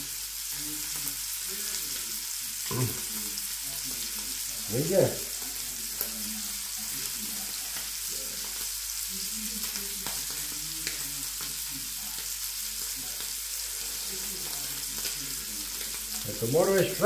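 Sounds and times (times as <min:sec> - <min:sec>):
meat sizzling in butter: 0:00.0 - 0:17.0
small pops of frying: 0:00.0 - 0:17.0.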